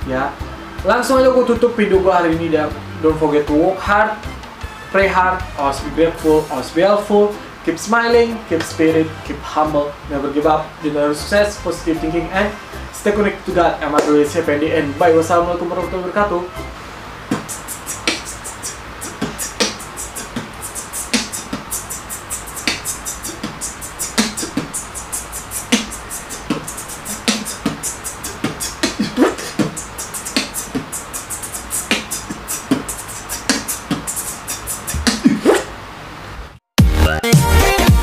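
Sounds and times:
instrumental beat music: 17.3s - 35.7s, 36.8s - 38.0s.

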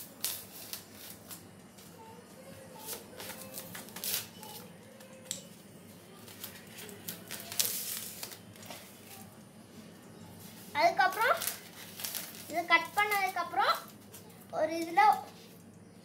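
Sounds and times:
knife cutting polystyrene foam: 0.0s - 1.4s, 2.8s - 4.7s.

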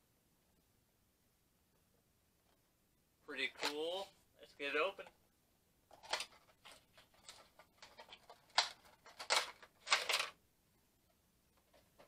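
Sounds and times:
cardboard and plastic packaging rustling: 5.9s - 10.4s.

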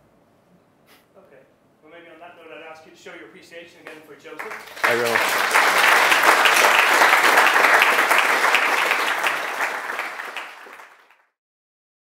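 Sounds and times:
audience applauding: 4.4s - 11.3s.

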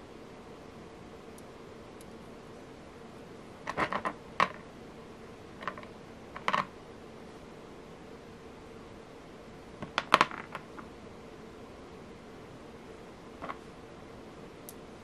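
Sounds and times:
beads clicking on hard worktop: 3.7s - 4.6s, 5.6s - 6.7s, 9.8s - 10.9s.

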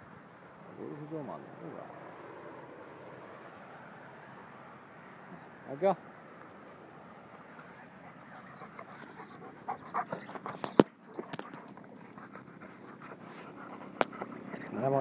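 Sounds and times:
dog panting: 5.8s - 15.0s.

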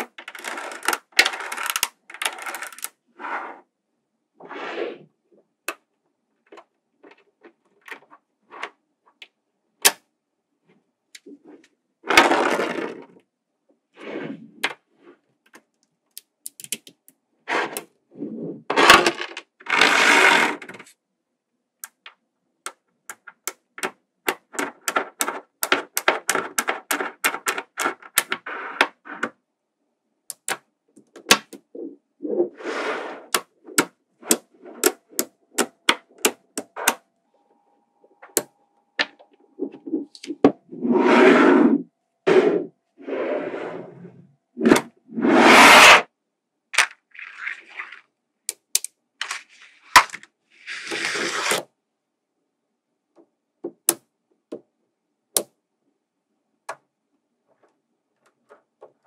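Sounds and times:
magnetic balls clicking together: 16.1s - 17.2s.

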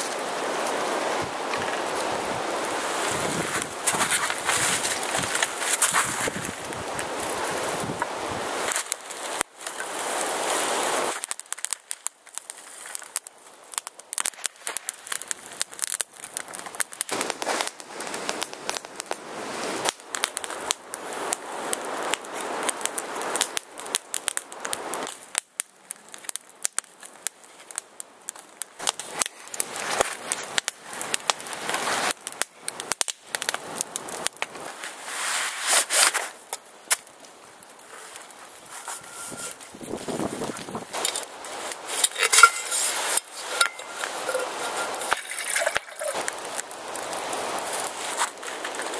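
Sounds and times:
wood fire crackling and popping: 0.0s - 48.9s
rustling of sticks and gear: 2.8s - 8.1s, 37.8s - 48.9s.

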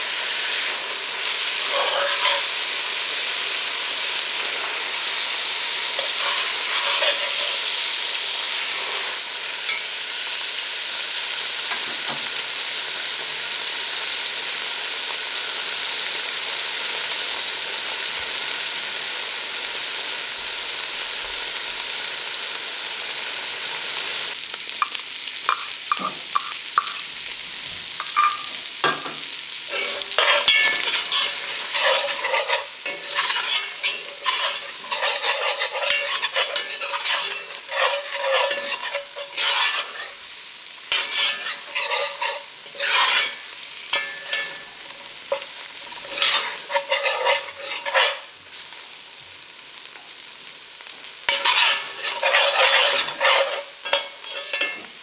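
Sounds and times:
food sizzling in butter: 0.0s - 55.0s
spatula scraping pot: 1.5s - 2.7s, 5.6s - 7.8s, 29.7s - 40.3s, 40.9s - 48.4s, 51.3s - 54.9s.

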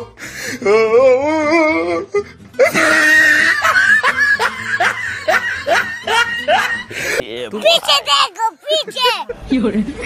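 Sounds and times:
music: 0.0s - 7.2s
comic laughing sound effect: 2.6s - 6.9s.

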